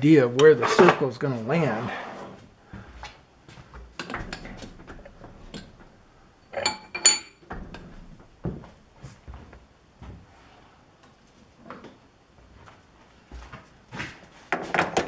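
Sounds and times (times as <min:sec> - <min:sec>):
metal tools clicking and knocking: 0:04.0 - 0:05.9, 0:06.5 - 0:07.9
ringing metal clinks: 0:06.5 - 0:07.4.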